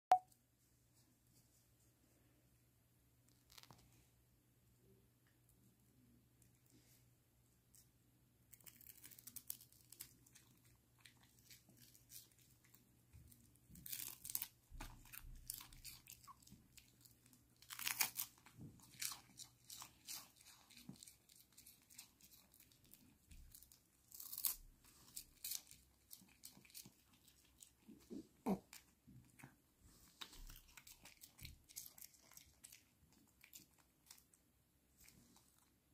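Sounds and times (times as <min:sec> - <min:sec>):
dog crunching a treat: 0:13.8 - 0:29.5, 0:30.2 - 0:34.4.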